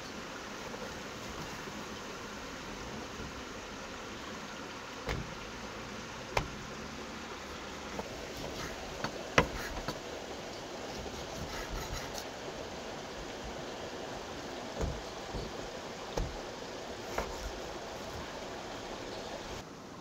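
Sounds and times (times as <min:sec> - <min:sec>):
steady background hiss: 0:00.0 - 0:20.0
cleaver chopping on wooden board: 0:08.5 - 0:10.0.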